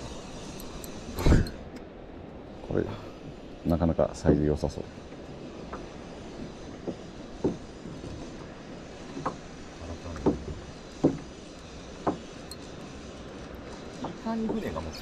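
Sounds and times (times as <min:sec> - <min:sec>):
sea wash: 0:00.0 - 0:15.0
wind: 0:00.0 - 0:15.0
water slapping against boat hull: 0:06.7 - 0:08.3, 0:09.1 - 0:11.4.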